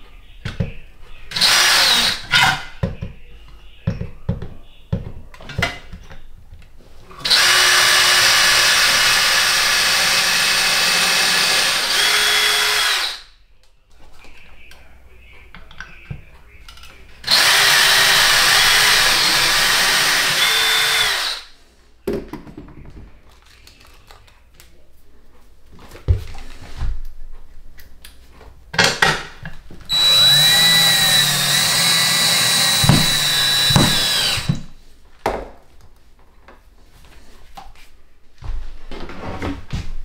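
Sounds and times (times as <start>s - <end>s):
cordless drill running: 1.3s - 2.2s, 7.2s - 13.2s, 17.2s - 21.5s, 29.9s - 34.7s
tool knocks and clicks: 32.7s - 34.7s.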